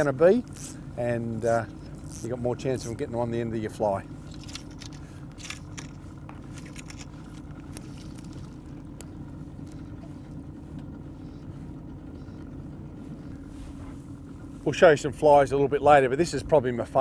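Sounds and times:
boat motor droning: 0.0s - 17.0s.

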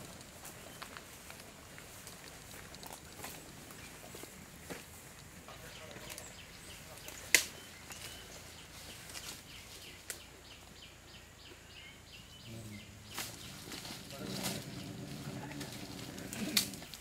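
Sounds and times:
sharp crack: 7.0s - 7.5s.

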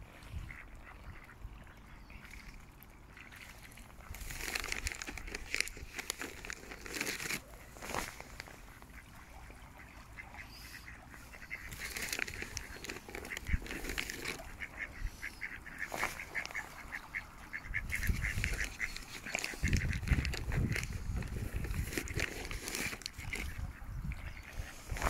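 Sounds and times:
ducks quacking: 0.2s - 2.5s, 3.1s - 25.0s.

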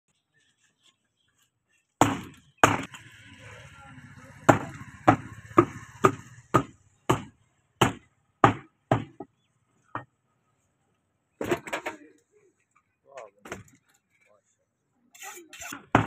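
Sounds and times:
meat cleaver chopping on wood: 4.5s - 9.2s.

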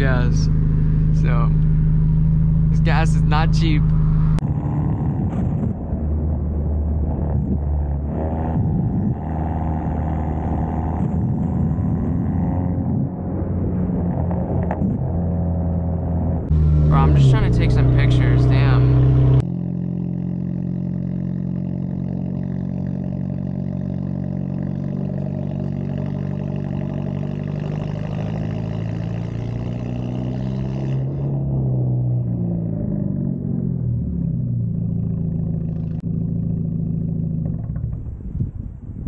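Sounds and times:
car exhaust droning: 0.0s - 39.0s.

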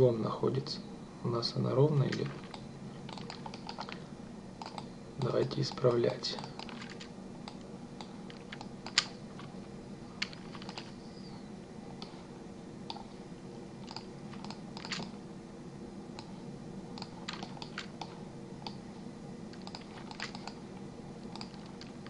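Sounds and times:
steady low hum: 0.0s - 22.0s
keyboard and mouse clicks: 2.1s - 4.0s, 4.6s - 9.2s, 10.2s - 11.0s, 12.9s - 13.1s, 13.8s - 15.1s, 17.0s - 18.8s, 19.5s - 20.6s, 21.2s - 22.0s.

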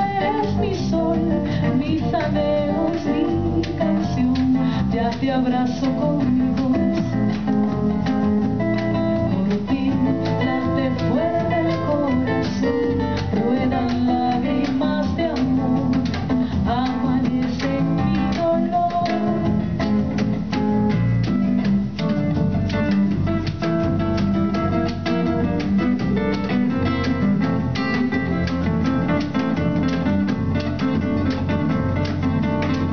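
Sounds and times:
woman singing: 0.0s - 20.2s
hand drum percussion: 0.0s - 32.9s
nylon-string guitar playing: 0.0s - 32.9s.

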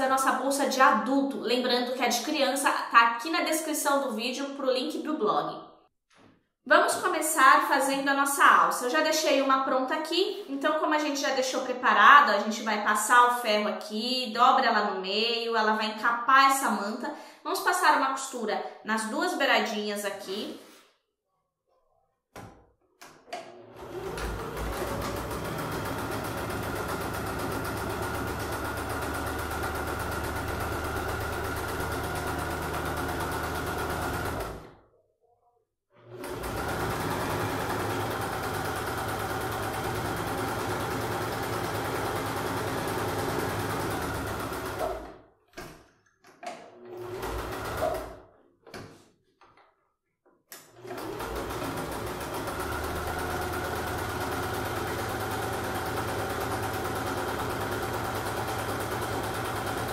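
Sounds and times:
sewing machine stitching: 23.2s - 34.8s, 36.0s - 45.2s, 46.5s - 48.3s, 50.6s - 59.9s.

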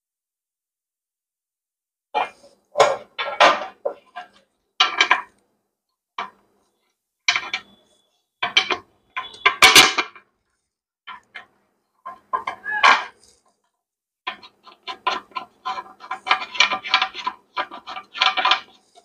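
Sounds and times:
hard plastic parts clattering: 8.4s - 10.2s, 14.3s - 19.0s.

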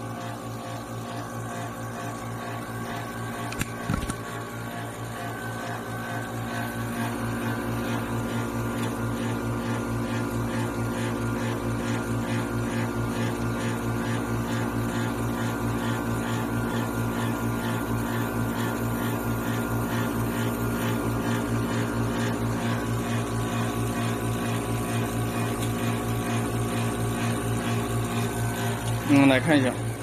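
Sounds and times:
machine hum with low pulsing: 0.0s - 30.0s.

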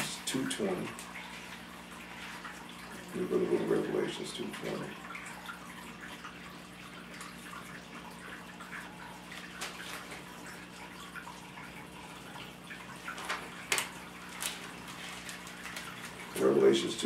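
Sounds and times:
low electrical hum and hiss: 0.0s - 17.0s
pages turning: 9.3s - 10.3s, 13.1s - 16.4s.

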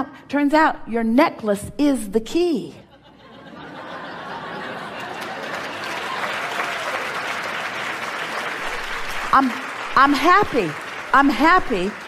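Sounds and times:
audience applauding: 4.2s - 12.0s.

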